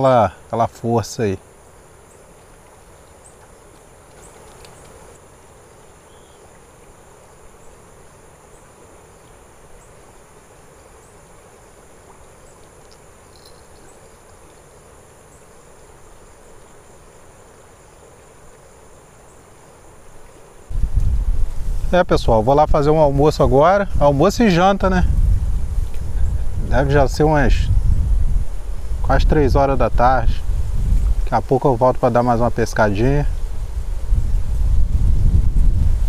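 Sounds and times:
flowing river water: 0.0s - 20.8s
faint clicks: 3.7s - 5.1s, 12.6s - 13.9s
high-pitched insect drone: 12.8s - 20.1s.

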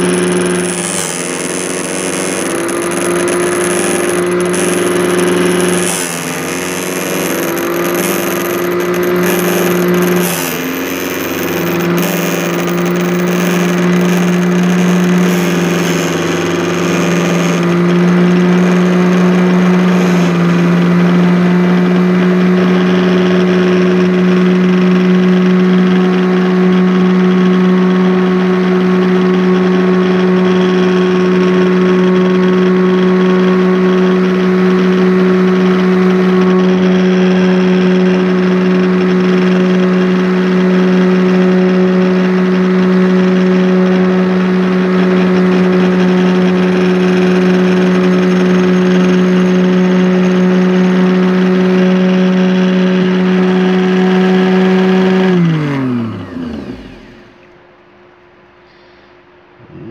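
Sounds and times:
cutter wheel milling a key: 0.0s - 20.8s
key-cutting machine humming: 0.0s - 21.4s, 25.8s - 57.6s.

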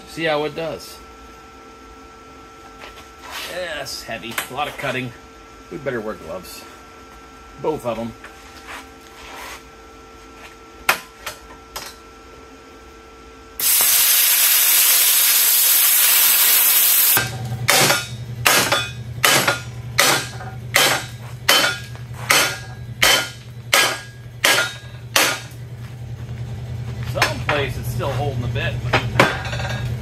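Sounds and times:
plasma cutter hissing: 13.6s - 17.2s.

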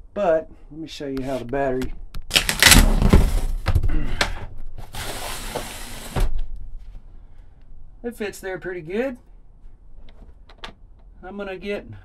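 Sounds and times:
battery scraping across floor: 4.8s - 6.3s.

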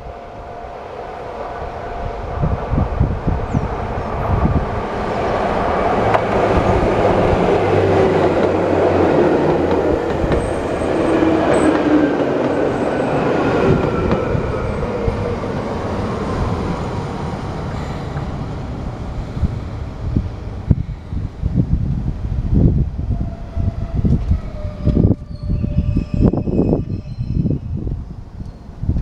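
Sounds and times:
electric train whine: 0.0s - 29.0s
train wheels on rails: 4.2s - 21.0s.

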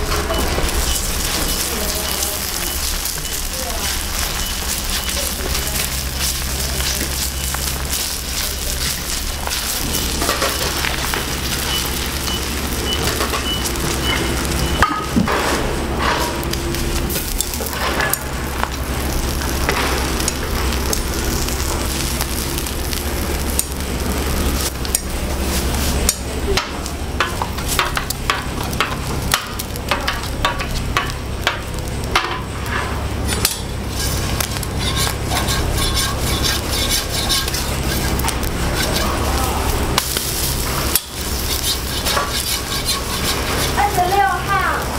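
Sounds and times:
eggs sizzling on griddle: 0.0s - 44.9s
steady low hum: 0.0s - 44.9s
metal scraper scraping steel: 33.3s - 39.3s, 40.9s - 43.8s.

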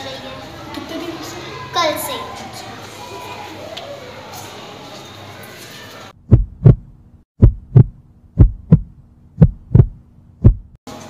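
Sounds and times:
heartbeat thumps: 6.2s - 10.8s.

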